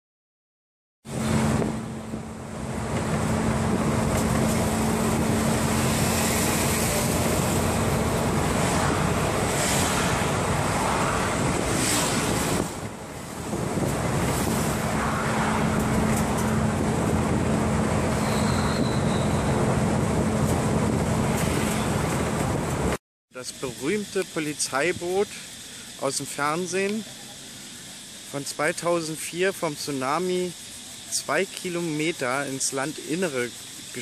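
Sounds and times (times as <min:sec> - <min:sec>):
road and wind noise inside car: 0:01.1 - 0:23.0.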